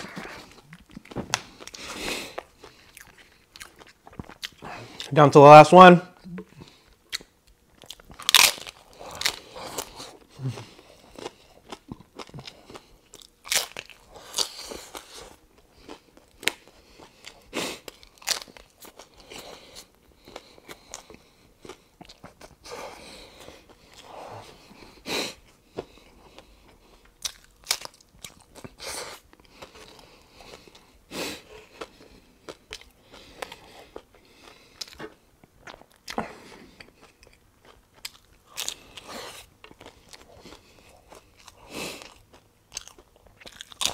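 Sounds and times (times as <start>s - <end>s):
crunching taco shell: 7.1s - 19.4s, 27.2s - 28.8s, 42.2s - 43.9s.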